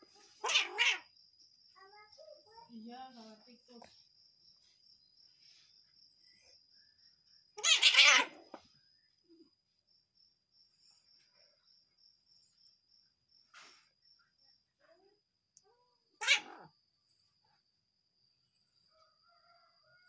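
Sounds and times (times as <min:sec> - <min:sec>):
cat crying angrily: 0:00.4 - 0:01.1, 0:07.6 - 0:08.5, 0:16.2 - 0:16.7.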